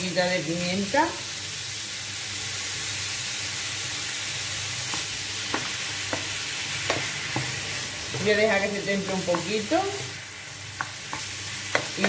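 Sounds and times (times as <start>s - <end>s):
meat sizzling in a pan: 0.0s - 12.0s
spoon knocking pan: 4.8s - 12.0s.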